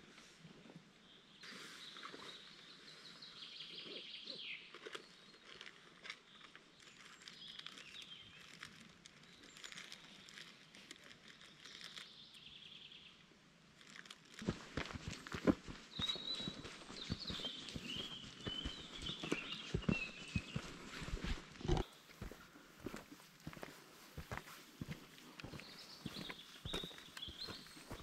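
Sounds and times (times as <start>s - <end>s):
songbirds trilling: 14.8s - 23.0s, 24.9s - 28.0s.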